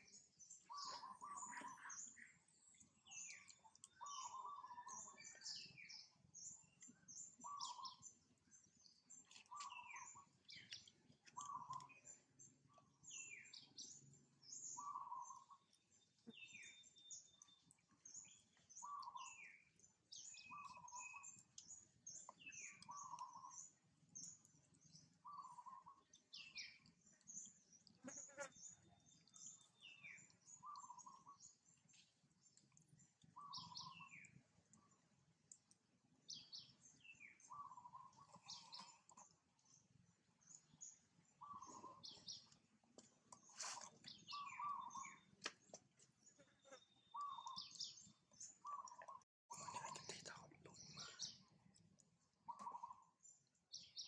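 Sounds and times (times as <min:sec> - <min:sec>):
high bird chirps: 0:00.0 - 0:08.1, 0:33.4 - 0:34.3, 0:43.4 - 0:45.6, 0:46.3 - 0:51.4.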